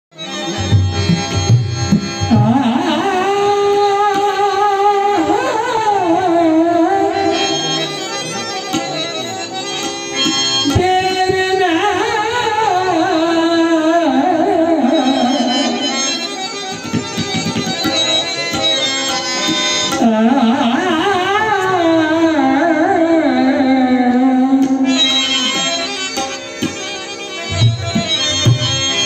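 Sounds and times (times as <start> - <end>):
harmonium: 0.1 - 29.0
tabla strokes: 0.2 - 4.8, 15.6 - 21.8, 24.5 - 29.0.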